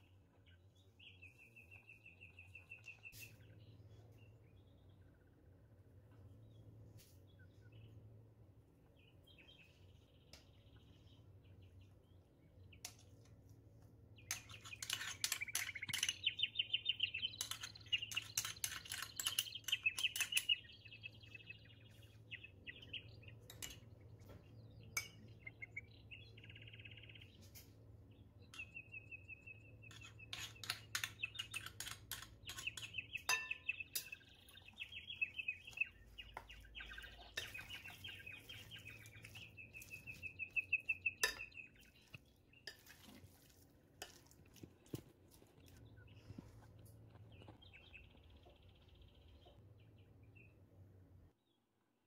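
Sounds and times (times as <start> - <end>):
small birds chirping: 0.0 - 51.6
spoon clinking glass bowl: 30.0 - 34.2, 41.2 - 41.6.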